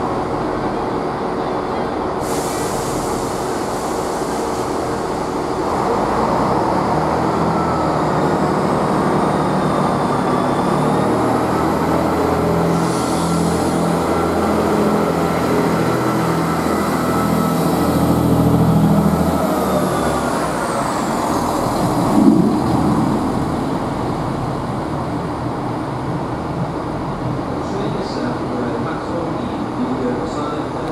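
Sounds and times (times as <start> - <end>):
diesel train pulling away: 0.0 - 30.9
high whine: 3.3 - 26.8.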